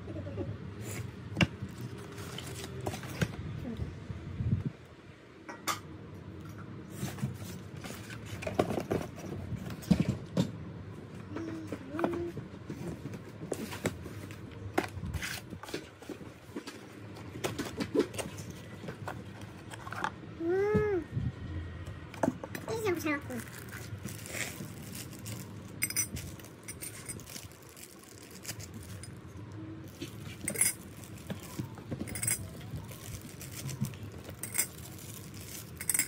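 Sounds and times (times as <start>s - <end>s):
paper and packaging rustling: 1.6s - 3.4s, 22.8s - 36.0s.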